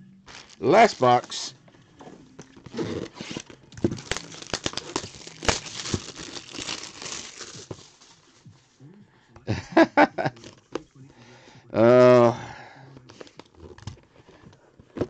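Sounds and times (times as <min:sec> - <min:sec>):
plastic wrapping crinkling: 0:00.3 - 0:01.5, 0:02.4 - 0:08.3.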